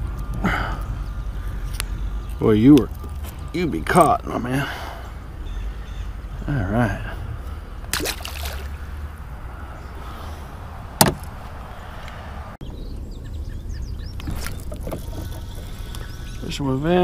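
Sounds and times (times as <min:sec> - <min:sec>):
fish splashing into water: 0:07.9 - 0:08.8.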